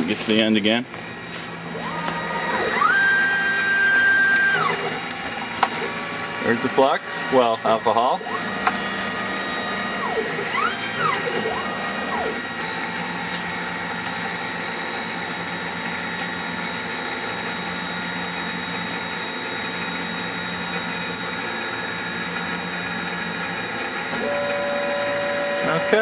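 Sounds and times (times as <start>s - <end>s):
soldering machine mechanical hum: 0.0s - 26.0s
whines rising and falling in pitch: 1.6s - 15.7s, 24.1s - 26.0s.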